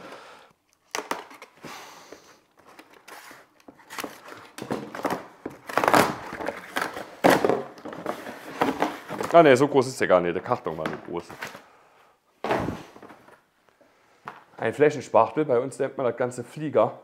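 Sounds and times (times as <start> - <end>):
cardboard tearing: 2.6 - 9.3.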